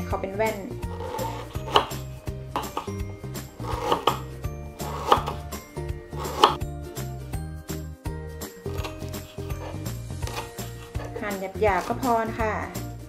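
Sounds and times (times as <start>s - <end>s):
background music: 0.0s - 13.0s
knife chopping on wooden board: 0.9s - 6.6s, 8.7s - 12.1s.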